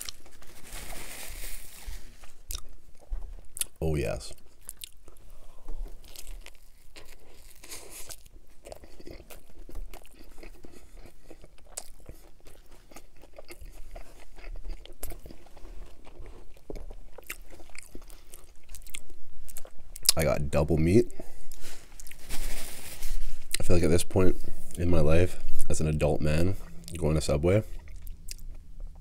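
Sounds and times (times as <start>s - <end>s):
biting and chewing sandwich: 0.0s - 0.6s, 4.4s - 20.2s.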